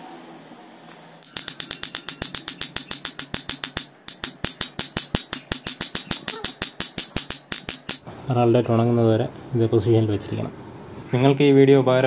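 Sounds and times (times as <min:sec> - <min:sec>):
small hammer tapping on metal: 0:01.2 - 0:08.0.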